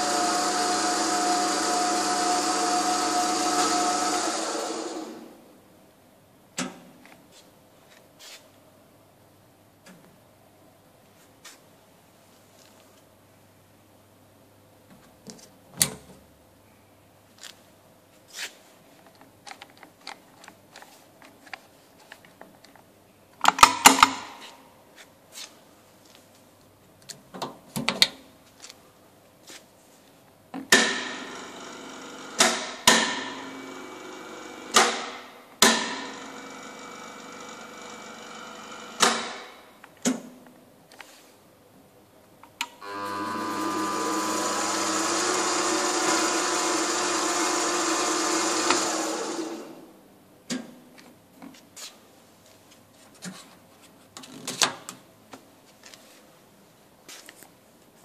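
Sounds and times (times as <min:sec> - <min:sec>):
steady machine hum: 0:00.0 - 0:05.6, 0:30.8 - 0:39.8, 0:42.8 - 0:50.1
sharp machine clunks: 0:30.7 - 0:33.6, 0:34.5 - 0:37.1, 0:38.8 - 0:39.6.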